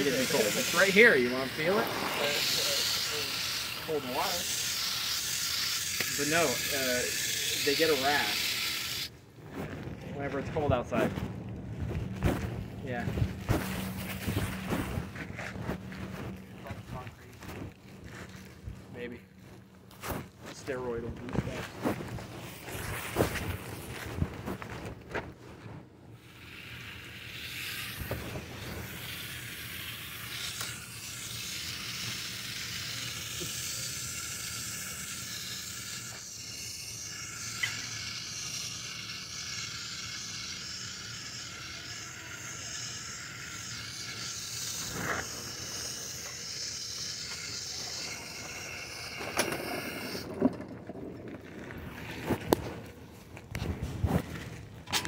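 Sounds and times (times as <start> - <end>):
garden hose spraying water: 0.0 - 9.1, 12.1 - 19.2, 26.2 - 50.3.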